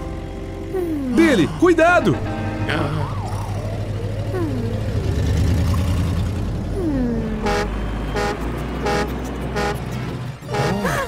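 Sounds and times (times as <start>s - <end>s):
low engine rumble: 0.0s - 11.0s
trumpet horn honking: 2.0s - 2.9s, 7.4s - 10.9s.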